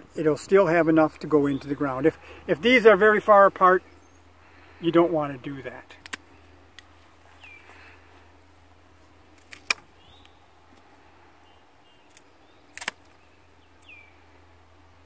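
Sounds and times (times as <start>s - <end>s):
faint bird chirps: 7.2s - 8.4s, 9.9s - 15.0s
pruning shears snipping stems: 9.3s - 10.9s, 12.0s - 13.2s.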